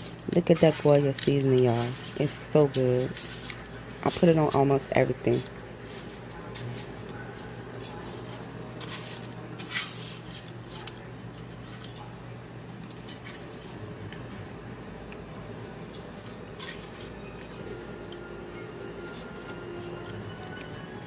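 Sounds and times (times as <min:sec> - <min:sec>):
foil pan crinkling and tapping: 0:00.0 - 0:14.3
breadcrumbs rustling: 0:00.0 - 0:20.6
steady low hum: 0:00.0 - 0:21.0.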